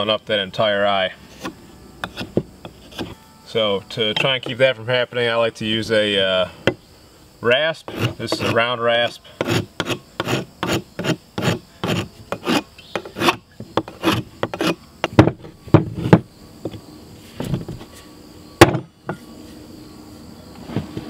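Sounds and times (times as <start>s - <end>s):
rasp scraping wooden handle: 1.3s - 3.2s, 7.8s - 16.2s.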